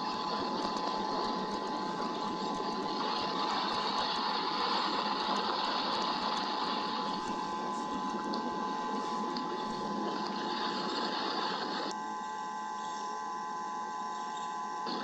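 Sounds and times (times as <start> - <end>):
rain hissing: 0.0 - 11.9
constant electronic hum: 0.0 - 15.0.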